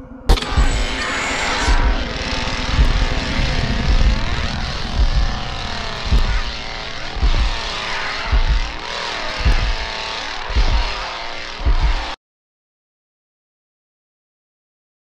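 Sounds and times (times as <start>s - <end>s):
chainsaw engine revving: 0.3s - 12.2s
heavy low thumps: 0.3s - 12.2s.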